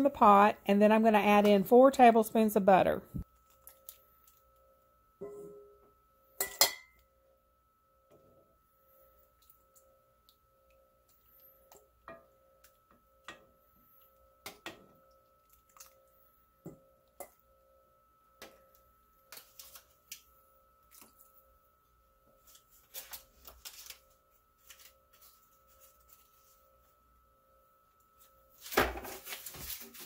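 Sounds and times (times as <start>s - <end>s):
faint steady hum: 0.0s - 30.0s
metal spoon tapping cast iron pot: 6.4s - 7.0s.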